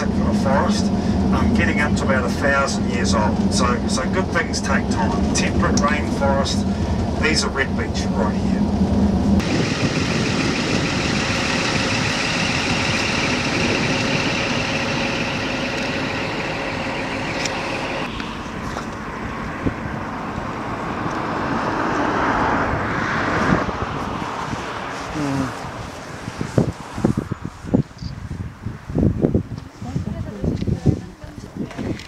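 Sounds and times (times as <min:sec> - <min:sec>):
whining tones: 0:00.0 - 0:19.1
bus engine and road noise: 0:00.0 - 0:32.0
rushing outdoor noise: 0:00.0 - 0:32.0.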